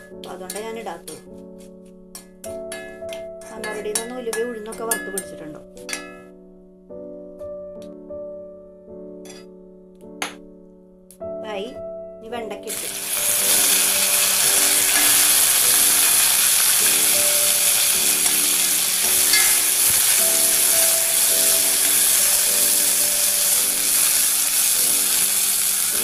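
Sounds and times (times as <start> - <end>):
okra sizzling in oil: 12.7 - 26.0
metal spoon stirring and scraping: 13.2 - 26.0.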